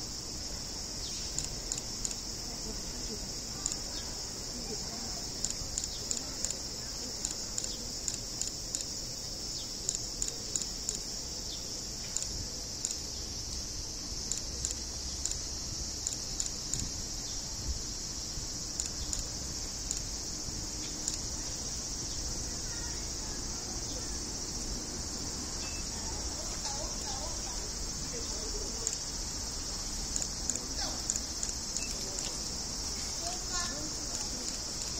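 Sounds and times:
cicada chorus: 0.0s - 34.9s.

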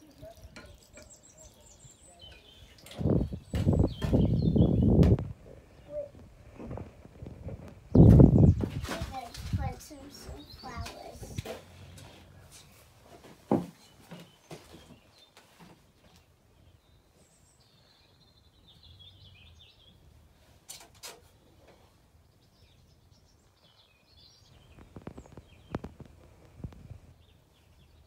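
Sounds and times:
pot and soil knocking: 0.0s - 1.5s.

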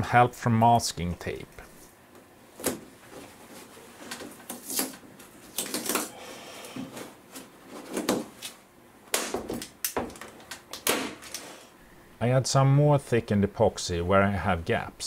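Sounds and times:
tape tearing: 4.0s - 6.2s.

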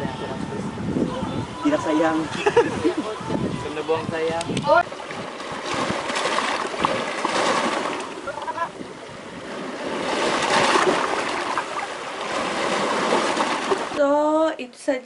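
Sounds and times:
small waves washing over rocks: 4.8s - 14.0s.

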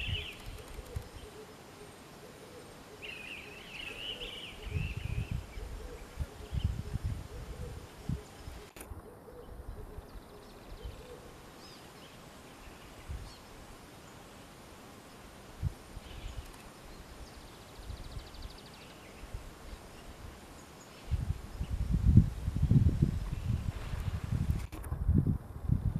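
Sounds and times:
faint bird chirps: 0.0s - 14.3s, 16.0s - 21.8s
wind thumps on microphone: 21.1s - 25.9s.

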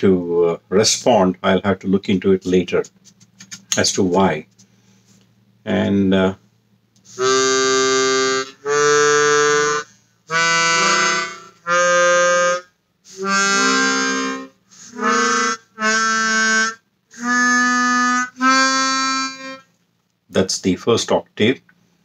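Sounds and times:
harmonica single held notes: 7.0s - 19.7s.

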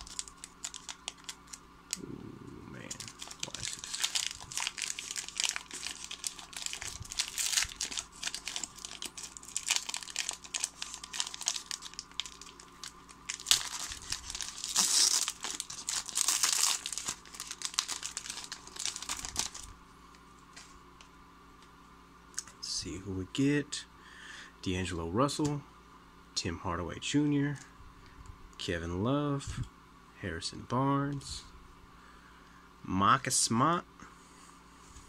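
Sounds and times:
wrapper crinkling and tearing: 0.0s - 2.0s, 2.8s - 19.7s.

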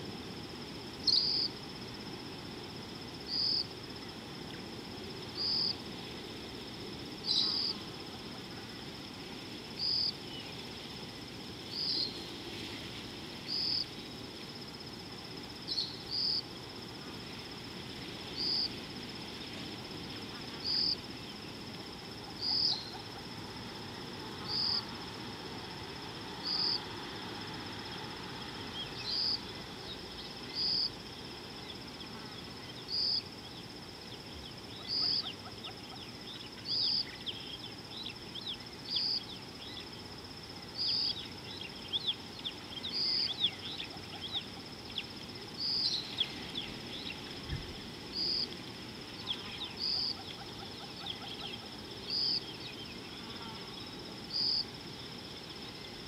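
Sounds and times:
high-pitched insect drone: 0.0s - 2.0s.

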